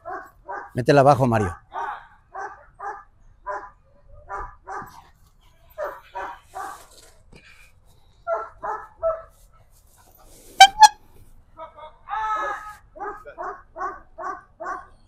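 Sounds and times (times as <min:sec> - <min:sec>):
dog barking sharply: 0:00.0 - 0:00.8, 0:01.8 - 0:03.7, 0:08.3 - 0:09.3.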